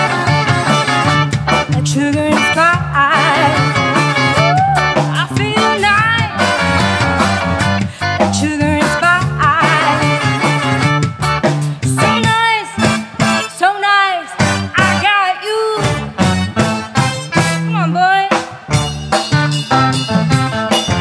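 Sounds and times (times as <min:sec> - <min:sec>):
bass and drums: 0:00.0 - 0:21.0
electric guitar: 0:00.0 - 0:21.0
woman singing with vibrato: 0:01.7 - 0:06.4, 0:08.3 - 0:10.3, 0:13.5 - 0:16.0, 0:17.7 - 0:18.4.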